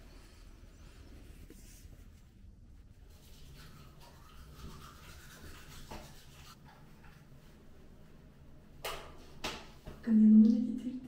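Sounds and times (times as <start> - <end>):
toothbrush scrubbing teeth: 3.1 - 6.6.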